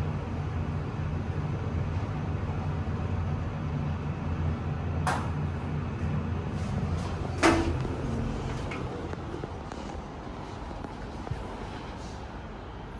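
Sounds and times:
lift low hum: 0.0 - 12.9
ringing clack of sliding doors: 7.2 - 9.4.

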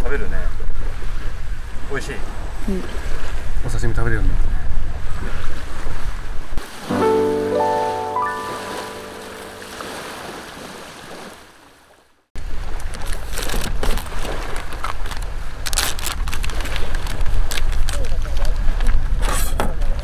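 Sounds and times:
waves lapping at shore: 0.8 - 3.7, 4.9 - 15.7
music jingle: 6.8 - 10.4
plastic zipper bag crinkling: 13.4 - 18.0.

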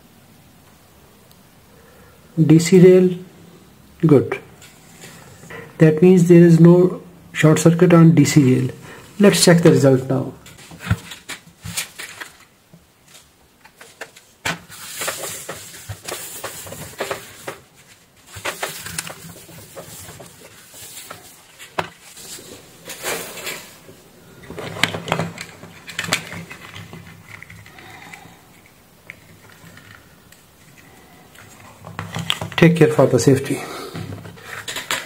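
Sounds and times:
paper tissue rustling: 8.4 - 35.0.

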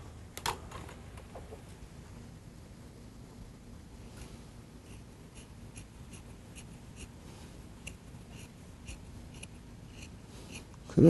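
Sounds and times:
scissors snipping fur: 7.8 - 10.8.

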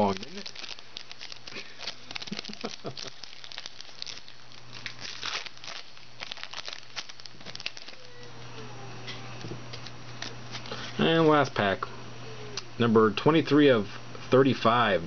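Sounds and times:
foil wrapper tearing and crinkling: 0.0 - 8.2, 10.1 - 10.8.

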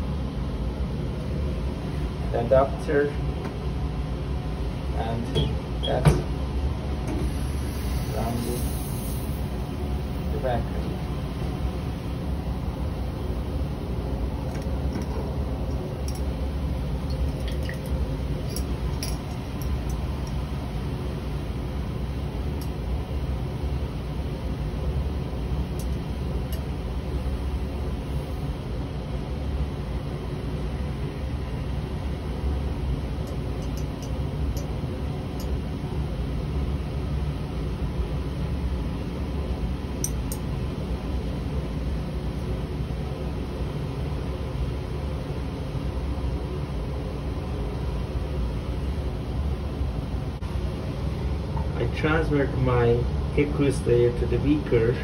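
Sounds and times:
low machine hum: 0.0 - 55.0
liquid dripping into flask: 17.0 - 18.0.

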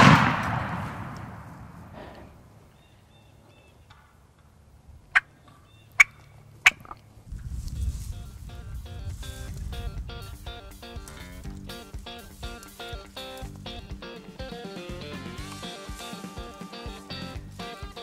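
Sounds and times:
shotgun blast echo: 0.0 - 2.1
turkey alarm putts: 5.1 - 7.0
guitar music: 8.0 - 18.0.

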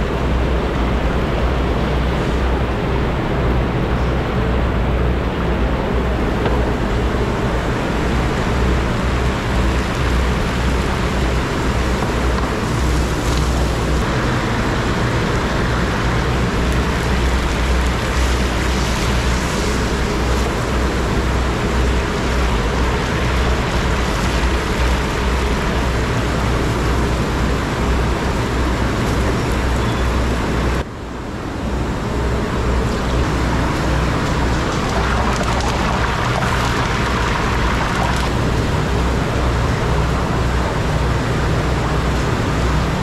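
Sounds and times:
pot boiling hard: 6.7 - 29.4, 33.1 - 43.0.

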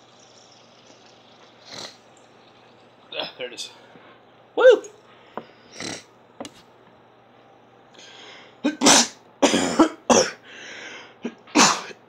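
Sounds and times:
person breathing in: 8.0 - 8.6, 10.4 - 11.2
person sneezing and coughing: 8.6 - 10.4, 11.2 - 12.0.

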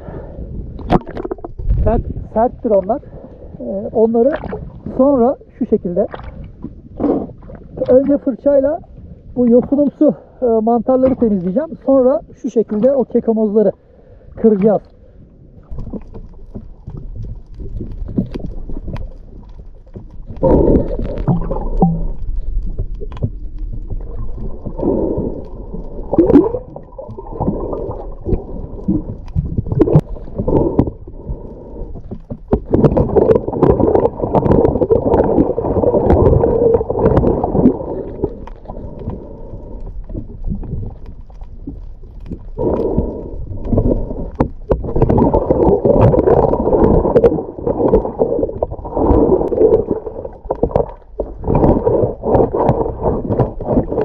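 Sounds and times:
underwater gurgling and churning water: 0.0 - 54.0
knocks underwater: 0.8 - 2.1, 32.0 - 38.1, 43.6 - 54.0.

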